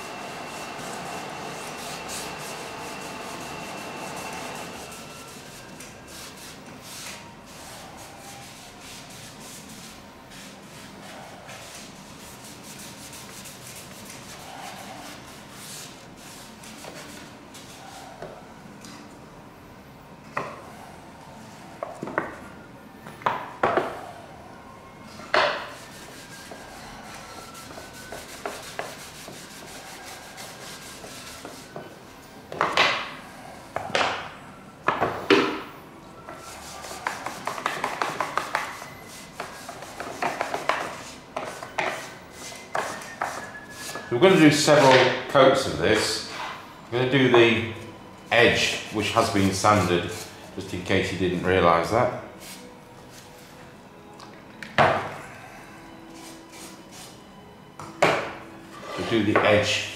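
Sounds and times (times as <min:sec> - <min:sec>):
paper towel rubbing wood: 0:00.0 - 0:18.1, 0:25.6 - 0:31.8, 0:36.4 - 0:45.0, 0:48.4 - 0:51.1.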